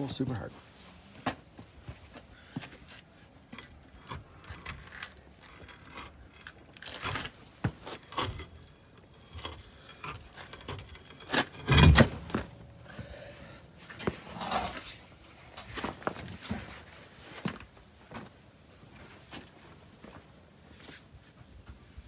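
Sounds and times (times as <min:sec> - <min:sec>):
metallic clinks and scrapes: 0:07.9 - 0:12.6, 0:15.6 - 0:17.4.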